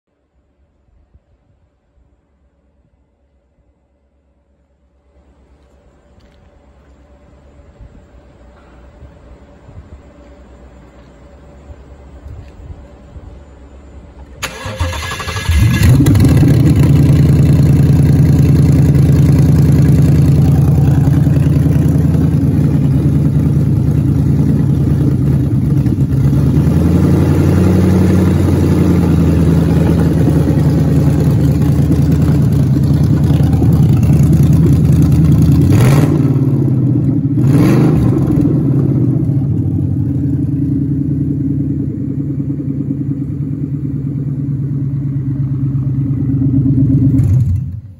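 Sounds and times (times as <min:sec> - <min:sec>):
car engine idling and revving: 0:14.2 - 0:47.9.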